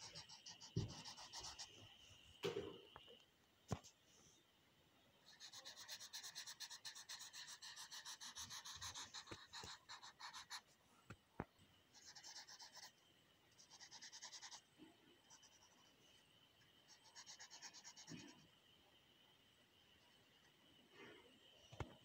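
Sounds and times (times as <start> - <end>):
crayon scratching on paper: 0.0 - 1.8, 5.3 - 10.7, 12.0 - 12.9, 13.5 - 14.6, 16.9 - 18.4.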